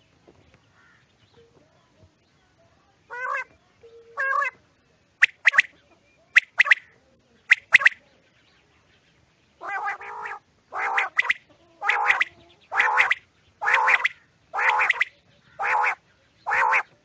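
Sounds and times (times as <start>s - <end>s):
quails calling: 3.1s - 3.5s, 4.1s - 4.6s, 5.2s - 8.0s, 9.6s - 17.0s.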